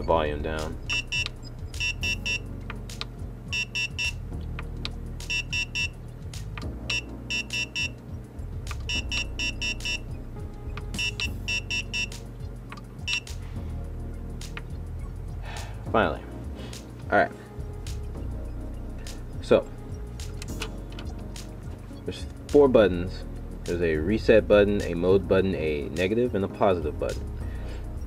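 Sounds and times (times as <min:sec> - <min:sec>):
steady low hum: 0:00.0 - 0:25.9
short high alarm beeps: 0:00.9 - 0:02.4, 0:03.5 - 0:04.2, 0:05.3 - 0:06.0, 0:06.9 - 0:08.0, 0:08.9 - 0:10.0, 0:11.0 - 0:12.2, 0:13.1 - 0:13.3.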